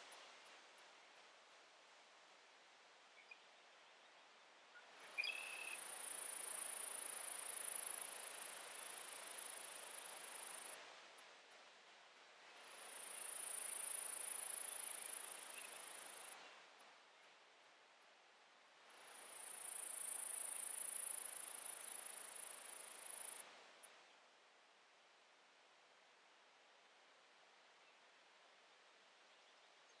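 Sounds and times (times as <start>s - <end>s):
faint outdoor hiss: 0.0s - 30.0s
insect ticks: 5.1s - 24.0s
insect buzzing trills: 5.2s - 10.8s, 12.6s - 16.4s, 18.9s - 23.4s.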